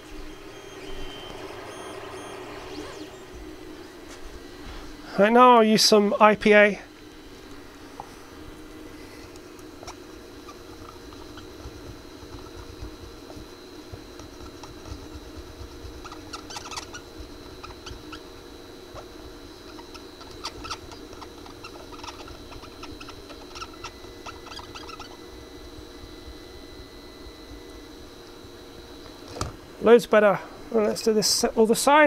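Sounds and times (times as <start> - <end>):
faint background hum and whine: 0.0 - 32.0
scrubbing circuit board: 9.4 - 25.2.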